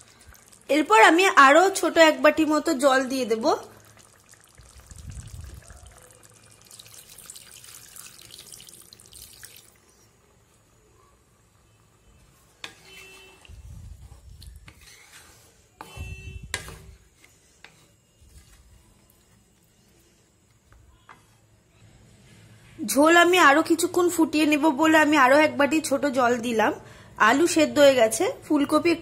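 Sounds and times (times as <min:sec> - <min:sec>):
water pouring into a pan: 0:03.5 - 0:10.0.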